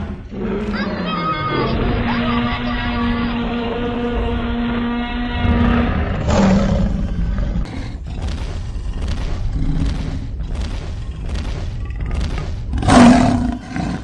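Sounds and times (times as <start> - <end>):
creature roar: 0.0 - 7.9
rough repeated growls: 0.0 - 14.0.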